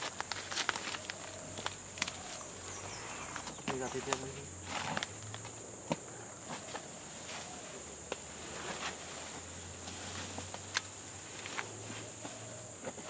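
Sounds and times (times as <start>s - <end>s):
footsteps snapping twigs: 0.0s - 6.9s, 9.9s - 11.8s
high-pitched insect drone: 0.0s - 8.0s.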